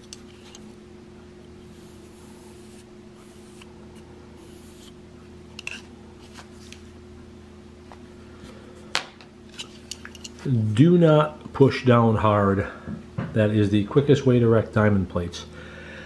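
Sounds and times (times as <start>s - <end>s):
steady low hum: 0.0s - 16.0s
marker scratching on metal edge: 1.6s - 3.7s, 4.4s - 5.0s.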